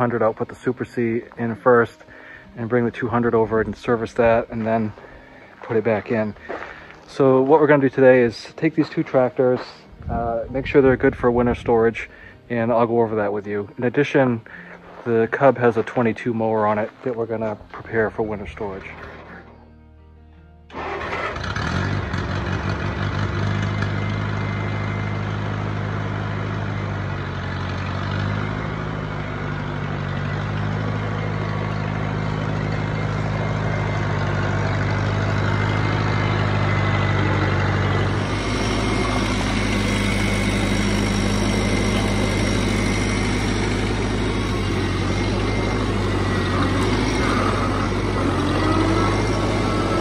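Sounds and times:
tractor engine running: 0:00.0 - 0:19.8, 0:20.7 - 0:50.0.

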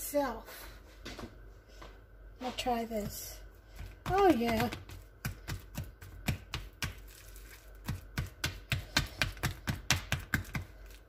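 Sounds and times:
whisk tapping plastic bowl: 0:03.9 - 0:07.0.

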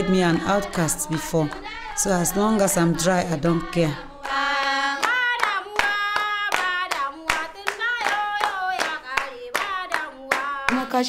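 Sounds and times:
women singing: 0:00.0 - 0:11.0
hand clapping: 0:04.2 - 0:11.0.

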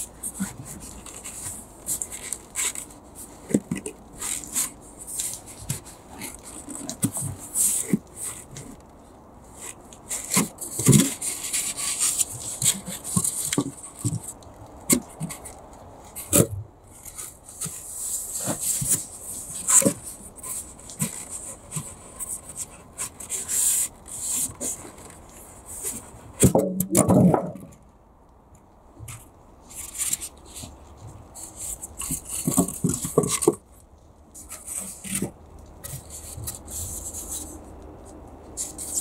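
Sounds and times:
foam boards scraping wood: 0:00.0 - 0:08.8, 0:09.5 - 0:15.5, 0:16.1 - 0:27.7, 0:29.7 - 0:33.6, 0:34.4 - 0:37.6.

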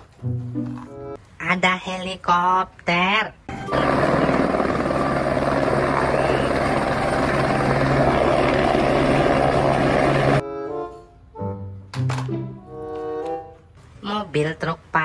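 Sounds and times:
helicopter hovering: 0:03.5 - 0:10.4.

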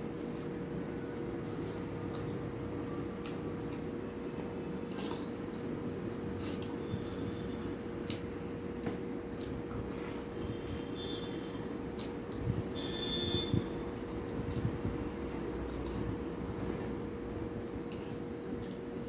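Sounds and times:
steady background hum: 0:00.0 - 0:19.0
wet squishing of rice by hand: 0:00.2 - 0:19.0
chewing and lip smacks: 0:01.7 - 0:04.0, 0:04.8 - 0:12.8, 0:14.0 - 0:16.4, 0:17.2 - 0:19.0.

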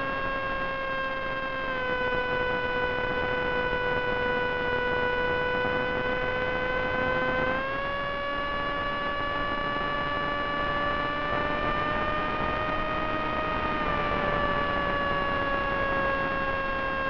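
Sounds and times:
electric motor and propeller whine: 0:00.0 - 0:17.0.

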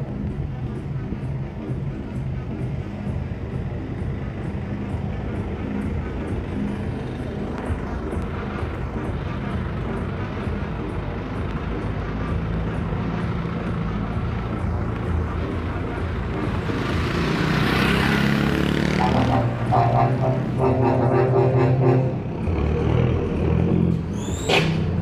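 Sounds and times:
bus diesel engine under load: 0:00.0 - 0:25.0
steady droning tone: 0:19.0 - 0:22.5
bus hiss passing by: 0:23.9 - 0:25.0.

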